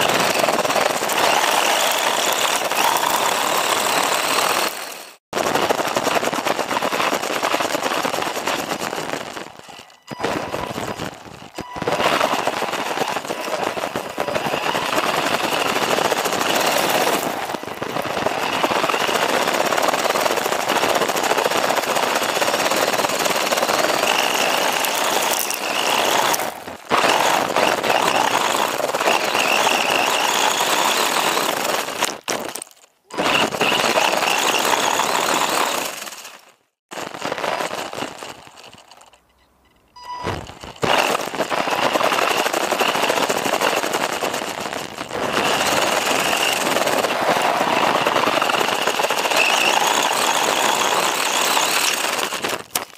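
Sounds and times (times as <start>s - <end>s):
rc car motor whine: 0.0s - 36.4s, 40.0s - 52.8s
gravel crunching against rc car: 0.0s - 52.9s.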